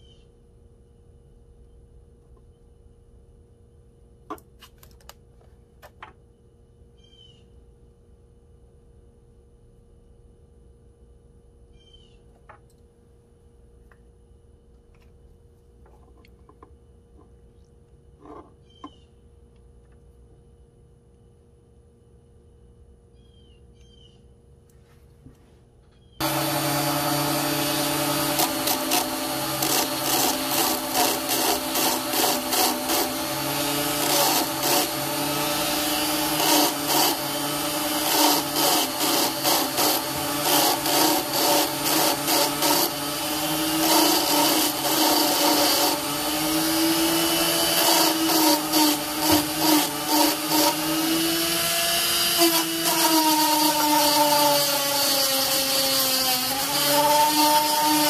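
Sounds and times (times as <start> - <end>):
lathe motor whine: 26.2 - 58.0.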